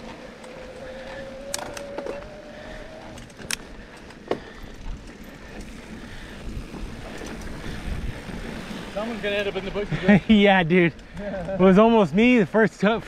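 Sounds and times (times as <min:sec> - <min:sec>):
electric motor whine: 0:00.0 - 0:03.6
tyre noise on dirt: 0:00.0 - 0:10.2
bike knocking on rough ground: 0:04.1 - 0:09.2
wind on microphone: 0:04.8 - 0:09.2.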